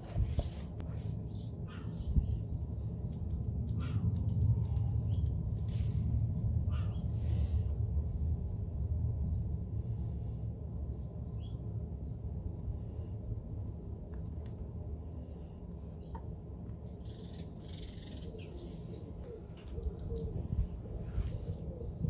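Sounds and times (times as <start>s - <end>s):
wind rumble on microphone: 0.0s - 14.8s, 19.0s - 22.0s
small metallic clicks: 3.1s - 5.8s.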